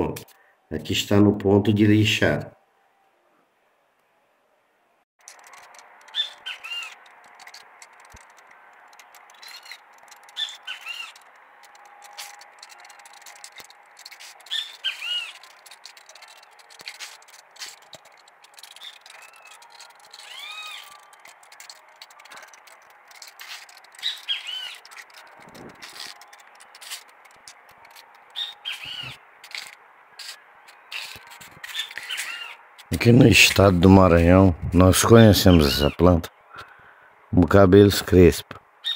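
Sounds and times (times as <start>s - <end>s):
faint clicks: 5.2s - 32.3s
birds chirping: 5.2s - 36.9s.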